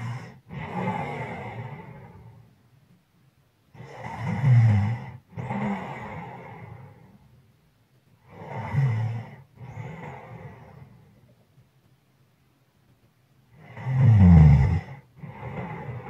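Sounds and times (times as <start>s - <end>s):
person snoring: 0.0s - 2.2s, 3.8s - 7.1s, 8.2s - 11.1s, 13.5s - 16.0s.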